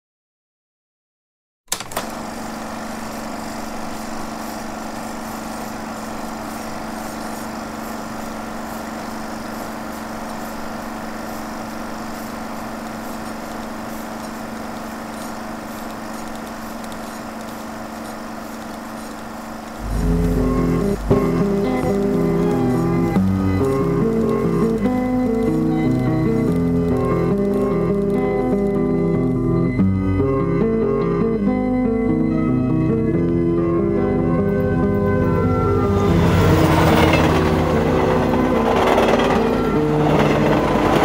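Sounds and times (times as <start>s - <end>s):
projector switch click: 1.7s - 2.2s
film projector whirring: 1.7s - 30.0s, 36.0s - 41.0s
guitar music: 19.8s - 41.0s.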